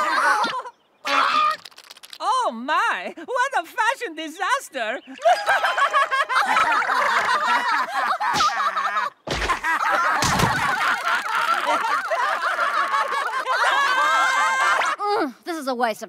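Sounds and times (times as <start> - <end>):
heavy cartoon thuds: 9.3 - 10.8.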